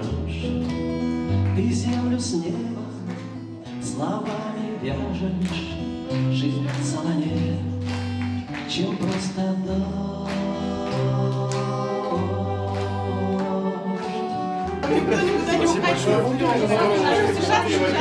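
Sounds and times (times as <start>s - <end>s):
man singing: 0.0s - 0.6s, 1.5s - 7.9s, 8.6s - 18.0s
rock band playing live: 0.0s - 12.5s
acoustic guitar: 0.0s - 18.0s.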